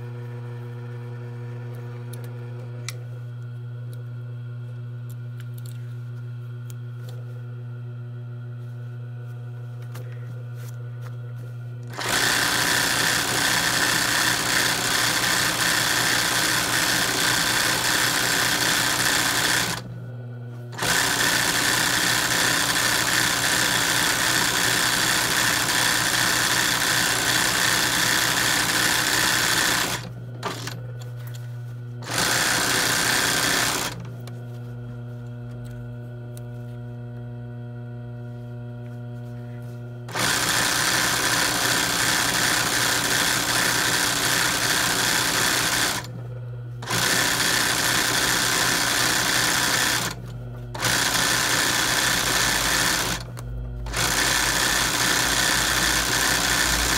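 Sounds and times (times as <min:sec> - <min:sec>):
steady low hum: 0:02.8 - 0:12.0, 0:34.0 - 0:40.1
sewing machine stitching: 0:11.9 - 0:19.9, 0:20.7 - 0:30.8, 0:32.0 - 0:34.1, 0:40.1 - 0:46.2, 0:46.8 - 0:56.9.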